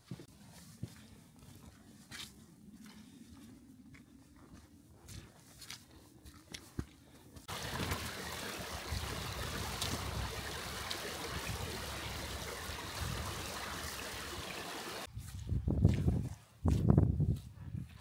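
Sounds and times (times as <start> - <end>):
stream running over stones: 7.5 - 15.1
footsteps on grass: 15.0 - 18.0.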